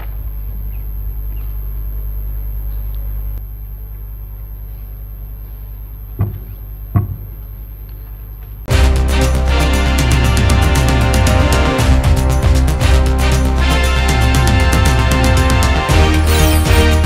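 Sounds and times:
low hum: 8.7s - 17.0s.

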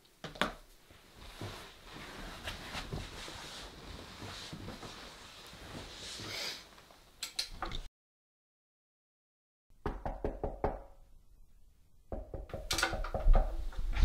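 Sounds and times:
knocking on a door: 9.8s - 10.9s, 12.1s - 13.6s.

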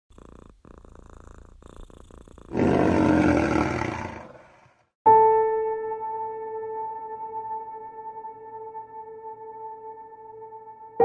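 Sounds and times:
lion roaring: 2.5s - 4.8s.

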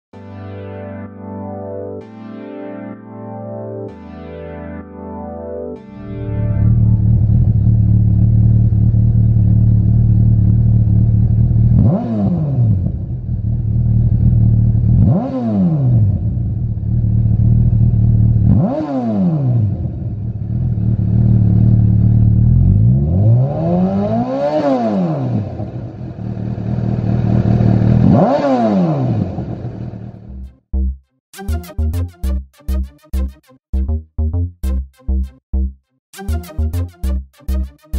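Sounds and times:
motorcycle engine idling: 7.0s - 11.8s, 20.3s - 22.6s, 26.0s - 28.0s
throttle blips revving: 30.3s - 37.9s.

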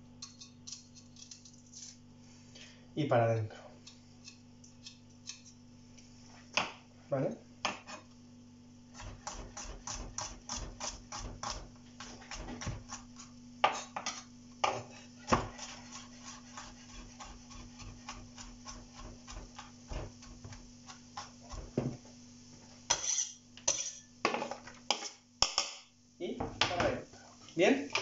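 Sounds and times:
knife chopping on cutting board: 8.9s - 22.0s.

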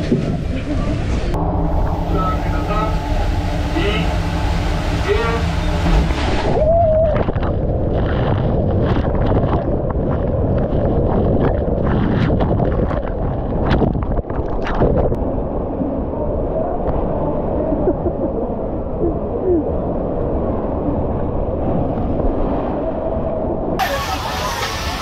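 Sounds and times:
rushing water in slide tube: 0.0s - 18.0s, 21.5s - 25.0s
wind noise: 0.0s - 25.0s
knocks and splashes: 4.9s - 15.2s.

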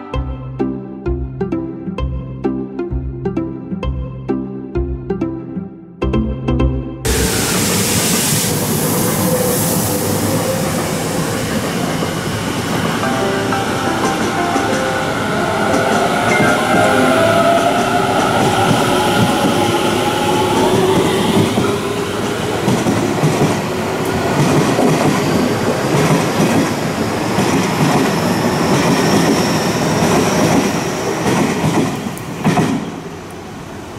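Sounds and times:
train wheels over rails: 7.1s - 33.9s.

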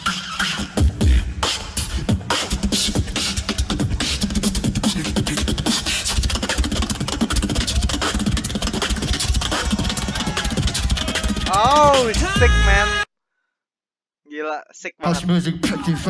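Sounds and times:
beatboxing into microphone: 0.0s - 13.0s, 15.0s - 16.0s
low bass tone: 11.6s - 13.0s.

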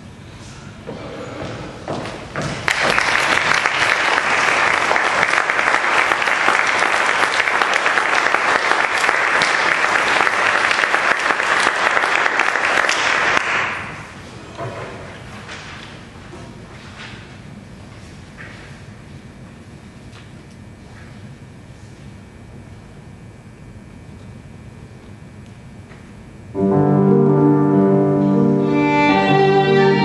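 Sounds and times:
audience applauding: 2.6s - 14.1s.

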